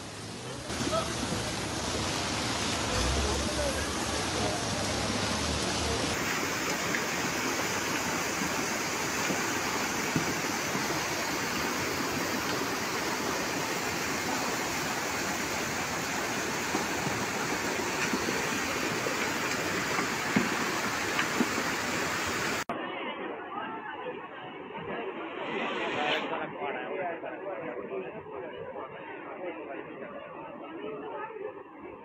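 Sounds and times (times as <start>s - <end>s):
floodwater rushing: 0.0s - 22.7s.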